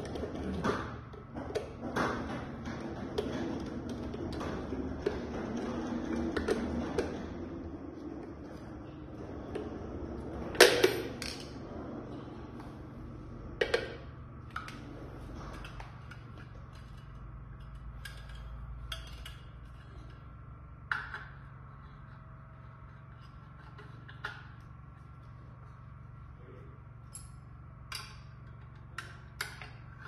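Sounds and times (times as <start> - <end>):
metal parts clinking and knocking: 15.5 - 20.2.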